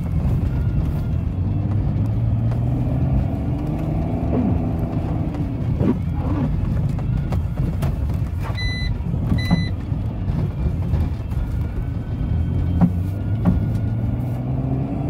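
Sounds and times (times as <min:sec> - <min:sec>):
car engine and tyres on snow: 0:00.0 - 0:15.0
short electronic beeps: 0:08.5 - 0:09.8.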